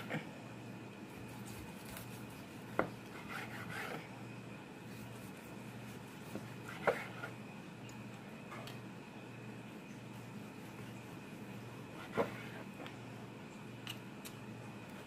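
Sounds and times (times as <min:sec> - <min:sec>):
knife scraping cutting board: 0:01.1 - 0:04.1, 0:04.8 - 0:07.4, 0:12.0 - 0:12.8.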